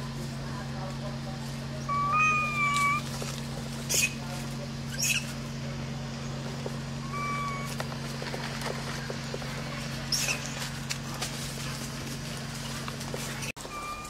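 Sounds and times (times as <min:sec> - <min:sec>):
steady low hum: 0:00.0 - 0:14.0
macaques squeaking: 0:01.8 - 0:04.3, 0:04.9 - 0:05.5, 0:07.0 - 0:07.9, 0:08.8 - 0:10.8, 0:12.6 - 0:14.0
whistle-like call: 0:13.6 - 0:14.0.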